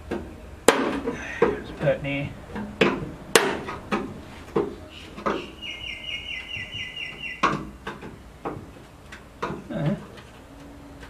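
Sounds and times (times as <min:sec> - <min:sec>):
bird trilling: 0:05.4 - 0:07.6.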